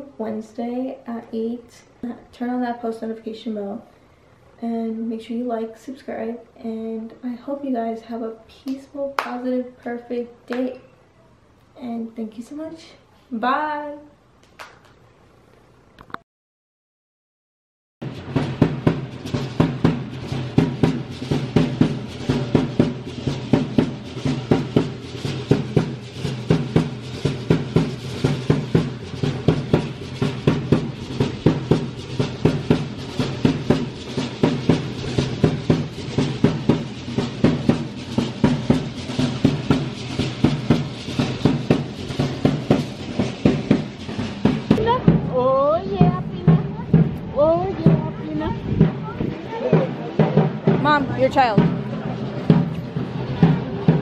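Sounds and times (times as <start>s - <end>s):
drum beating: 18.0s - 54.0s.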